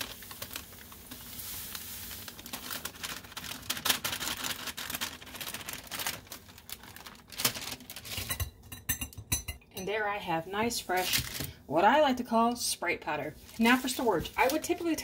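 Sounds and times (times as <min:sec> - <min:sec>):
powder sliding through funnel: 0:00.0 - 0:05.4
paper crinkling and tapping: 0:00.0 - 0:08.6, 0:11.0 - 0:11.5, 0:13.4 - 0:15.0.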